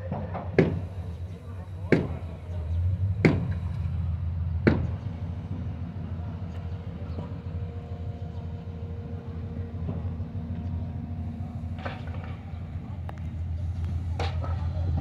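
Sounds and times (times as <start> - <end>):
low engine drone: 0.1 - 15.0
sharp knock: 3.2 - 3.6.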